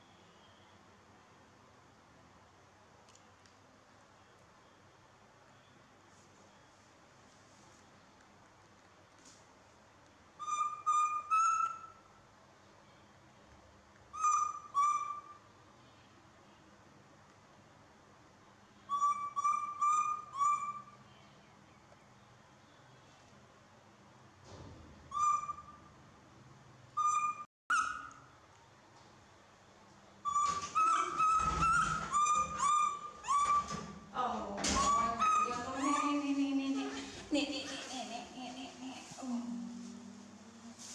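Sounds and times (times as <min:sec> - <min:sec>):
baby monkey coo calls: 0:30.2 - 0:33.8, 0:34.6 - 0:37.1.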